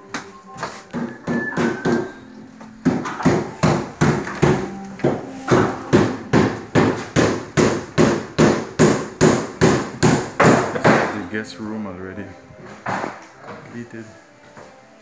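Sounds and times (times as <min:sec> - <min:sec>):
hammering blows: 0:00.2 - 0:11.3.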